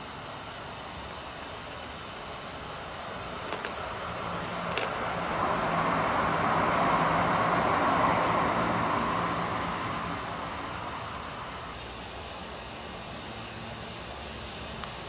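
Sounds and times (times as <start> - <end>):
road vehicle passing by: 2.4 - 11.8.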